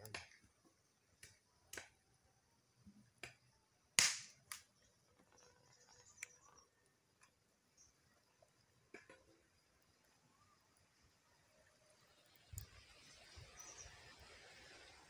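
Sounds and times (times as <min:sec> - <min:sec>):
wood fire crackling and popping: 0:00.0 - 0:02.1, 0:03.1 - 0:07.3.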